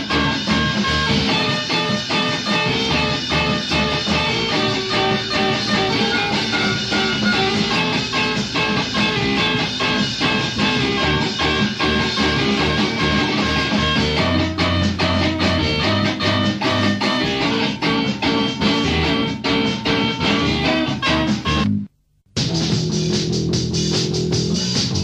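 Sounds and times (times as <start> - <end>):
steady drum beat: 0.0 - 21.6, 22.4 - 25.0
rock guitar: 0.0 - 25.0.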